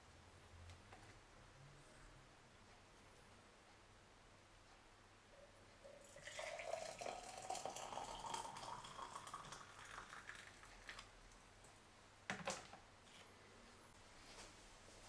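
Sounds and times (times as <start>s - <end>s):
water pouring into glass: 5.8s - 11.0s.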